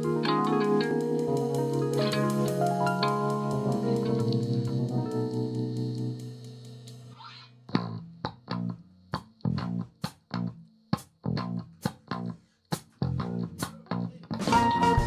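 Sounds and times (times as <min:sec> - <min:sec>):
band chord: 0:00.0 - 0:07.2, 0:14.4 - 0:15.0
guitar riff of low plucked notes: 0:00.0 - 0:10.6, 0:13.0 - 0:15.0.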